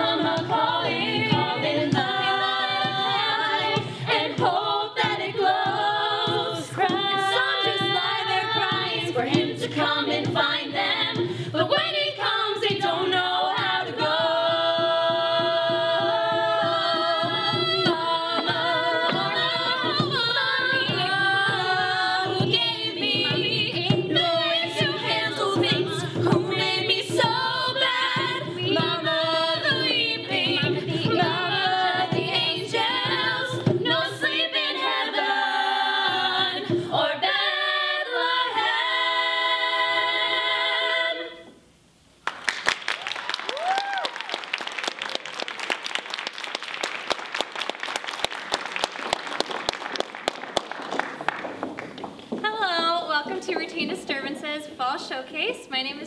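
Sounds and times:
women singing in harmony: 0.0 - 41.6.

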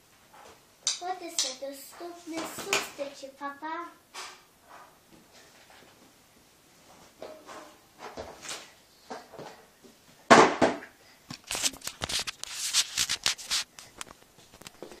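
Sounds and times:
rubbing against microphone: 11.4 - 14.8.

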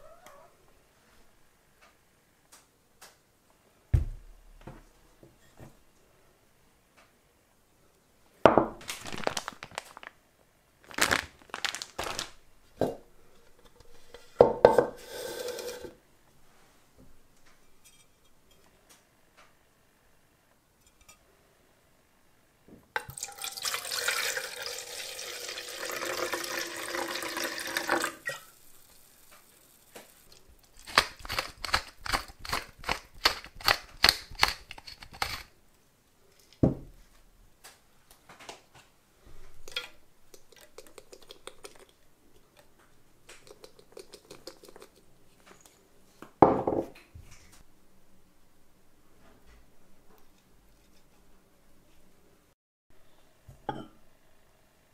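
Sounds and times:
knock: 4.0 - 4.8, 36.6 - 36.9
wine pouring into a plastic jug: 23.0 - 29.0
pepper mill clicking: 30.6 - 35.5.

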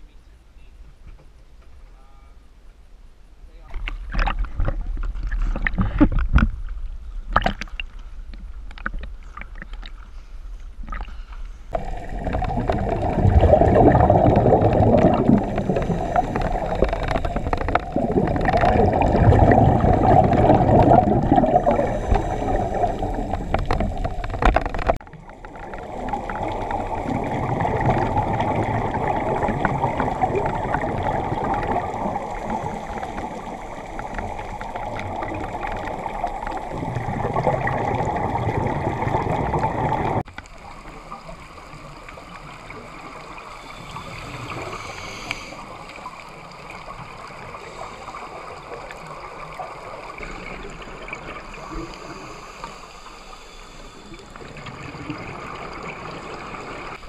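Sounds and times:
underwater bubbling rush: 10.8 - 57.0
water splashing against camera housing: 23.3 - 25.0.

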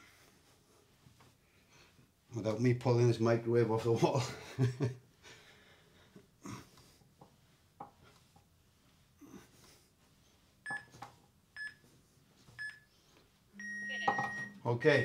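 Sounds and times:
microwave keypad beeps: 10.7 - 10.9, 13.6 - 15.0.

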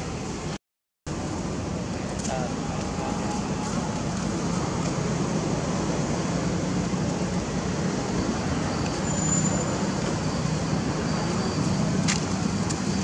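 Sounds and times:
thin high whistle: 8.5 - 11.9.

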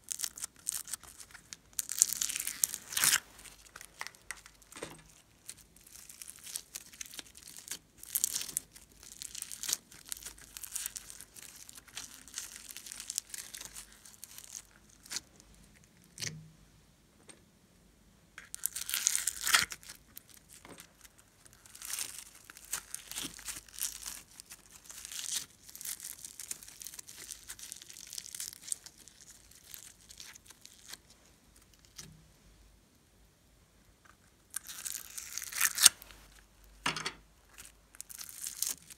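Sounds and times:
foam bead slime crackling: 0.0 - 15.5, 18.4 - 32.1, 34.4 - 36.4, 37.5 - 38.9.

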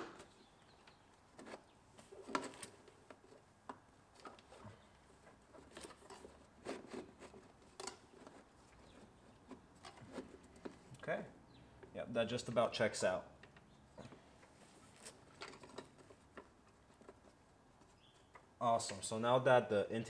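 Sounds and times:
faint clicks taps and rustles: 13.3 - 19.1.

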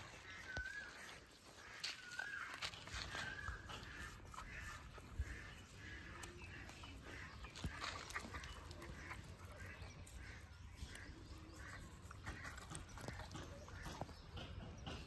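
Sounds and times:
leaf crinkling: 7.4 - 9.7.

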